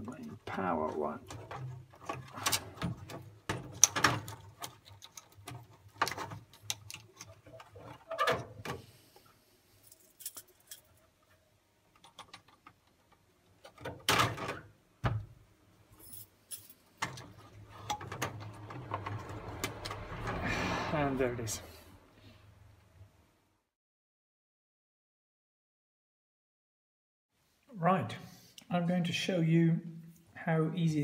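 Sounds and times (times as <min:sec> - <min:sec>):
plastic connectors clicking and scraping: 0:01.2 - 0:08.0
plastic clatter: 0:01.2 - 0:08.8.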